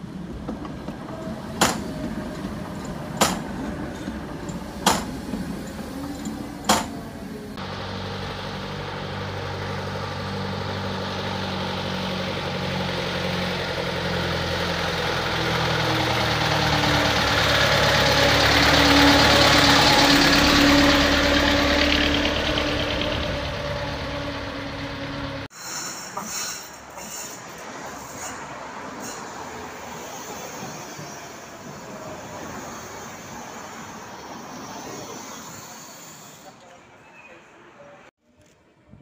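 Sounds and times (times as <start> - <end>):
bus engine passing by: 0.0 - 25.5, 26.8 - 38.1.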